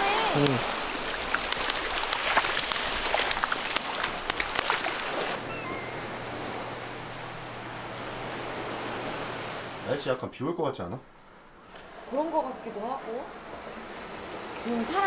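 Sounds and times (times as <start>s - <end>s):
water splashing: 0.0s - 5.4s
surf washing over sand: 0.0s - 10.1s
steady low hum: 5.4s - 14.2s.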